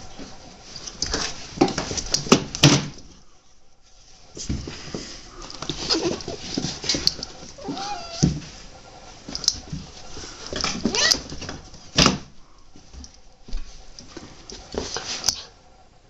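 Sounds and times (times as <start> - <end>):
animals scuffling on carpet: 3.8 - 11.9.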